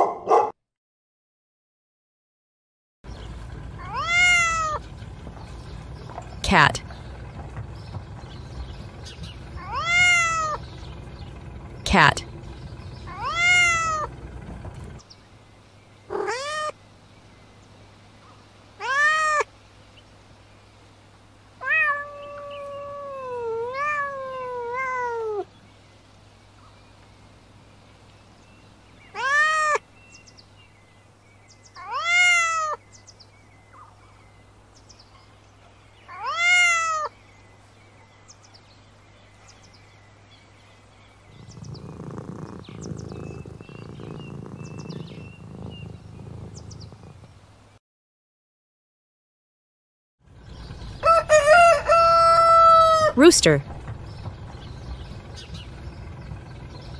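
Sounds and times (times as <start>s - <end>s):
cat meowing: 3.8s - 4.8s, 9.6s - 10.6s, 13.1s - 14.1s, 16.1s - 16.7s, 18.8s - 19.5s, 21.6s - 25.5s, 29.1s - 29.8s, 31.8s - 32.8s, 36.1s - 37.1s, 41.7s - 47.2s.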